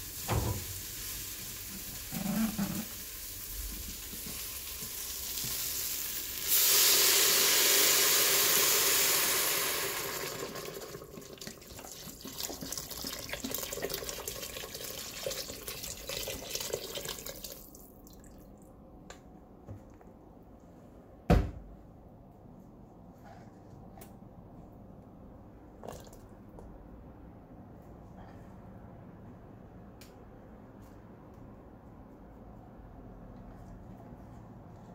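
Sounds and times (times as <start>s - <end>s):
water pouring into a pot: 0.0s - 18.4s.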